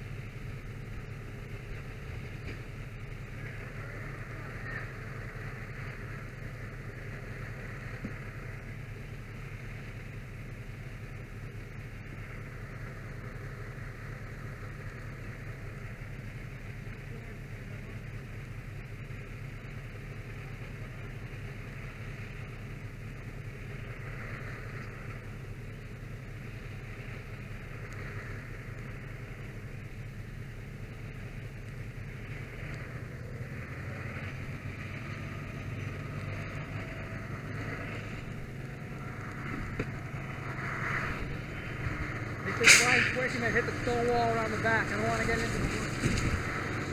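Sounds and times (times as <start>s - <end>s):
fire engine running: 0.0s - 46.9s
steady hiss: 0.0s - 46.9s.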